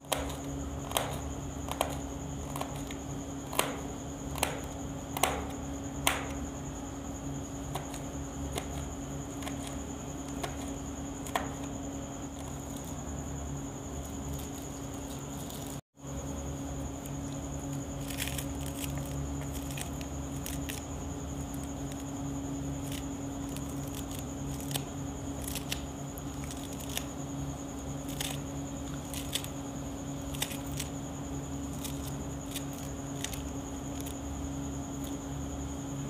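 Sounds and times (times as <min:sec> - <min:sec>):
steady background hum: 0:00.0 - 0:36.0
knife chopping on a hard tray: 0:03.5 - 0:06.4.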